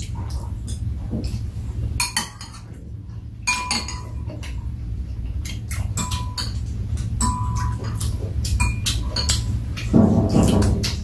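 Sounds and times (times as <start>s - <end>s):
low hum: 0.0s - 11.0s
spoons clinking on ceramic bowls: 2.0s - 2.7s, 3.4s - 4.6s, 6.0s - 9.6s.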